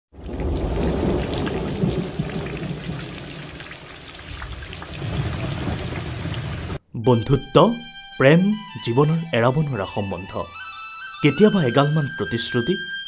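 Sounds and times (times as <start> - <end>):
rain falling: 0.1 - 6.8
low rumble of thunder: 0.2 - 6.8.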